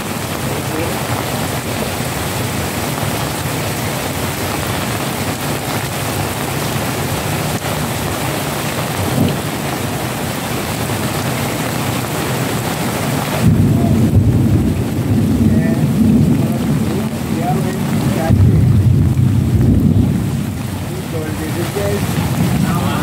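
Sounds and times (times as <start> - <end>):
heavy rain pouring: 0.0 - 23.0
deep rumble: 13.4 - 23.0.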